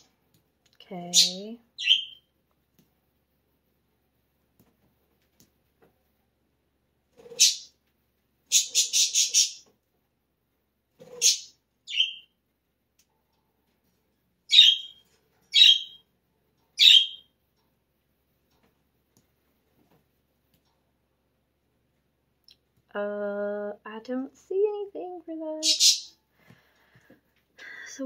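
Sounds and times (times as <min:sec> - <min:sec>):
bird chirping: 0:01.0 - 0:02.3, 0:07.2 - 0:07.8, 0:08.5 - 0:09.7, 0:11.0 - 0:12.4, 0:14.5 - 0:16.1, 0:16.7 - 0:17.4, 0:25.6 - 0:26.2.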